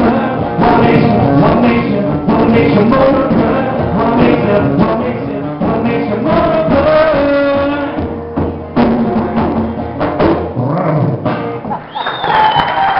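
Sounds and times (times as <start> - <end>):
man singing: 0.0 - 8.2
conga drums played by hand: 0.0 - 11.8.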